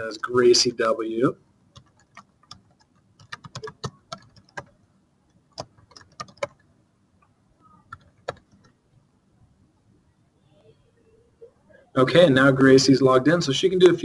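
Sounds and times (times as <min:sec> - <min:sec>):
computer keyboard typing: 0:01.7 - 0:04.8, 0:05.5 - 0:06.7, 0:07.6 - 0:08.8.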